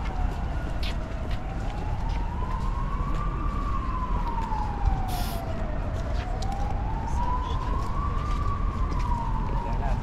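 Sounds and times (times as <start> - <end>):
emergency siren wailing: 0.0 - 10.0
low street rumble: 0.0 - 10.0
short hiss: 5.1 - 5.4.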